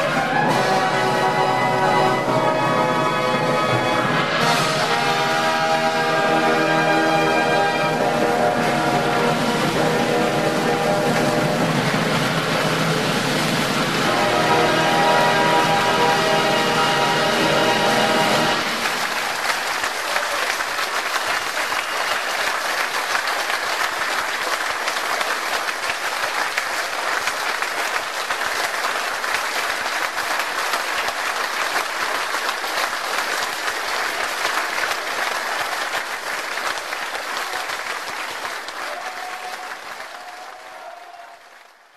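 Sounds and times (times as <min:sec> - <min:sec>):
brass band chord: 0:00.0 - 0:19.2
audience applause: 0:00.0 - 0:41.9.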